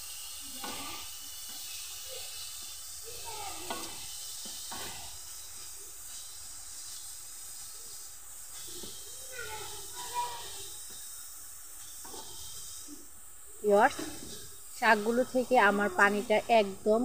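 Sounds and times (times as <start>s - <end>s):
greens sizzling in a pan: 0.0s - 17.0s
spatula scraping a pan: 0.3s - 11.2s, 11.8s - 12.9s.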